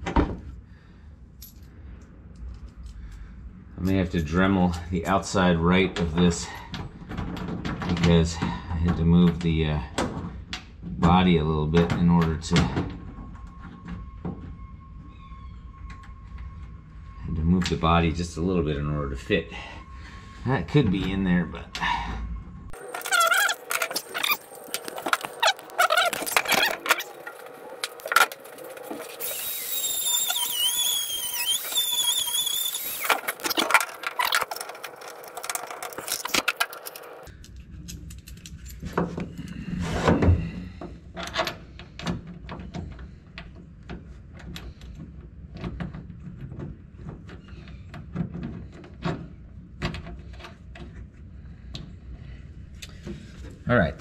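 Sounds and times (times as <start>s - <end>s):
low hum: 12.2s - 41.0s
high wavering squeal: 13.1s - 37.3s.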